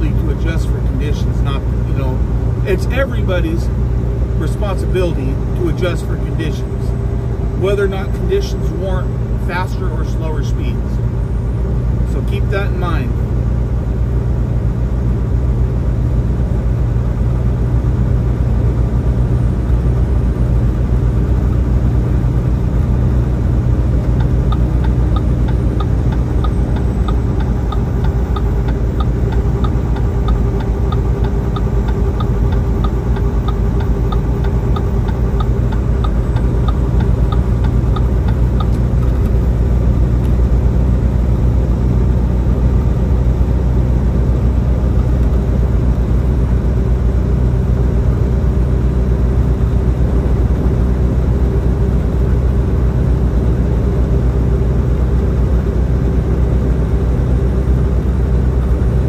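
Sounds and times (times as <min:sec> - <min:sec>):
diesel engine drone: 0:00.0 - 0:59.0
road noise: 0:00.0 - 0:59.0
light regular ticking: 0:24.0 - 0:39.4.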